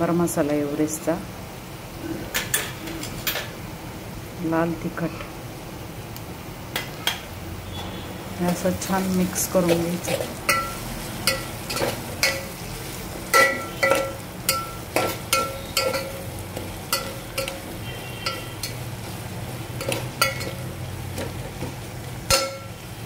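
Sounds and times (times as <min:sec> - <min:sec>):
oil sizzling: 0:00.0 - 0:23.0
spoon scraping and knocking pot: 0:13.3 - 0:18.8, 0:19.8 - 0:22.7.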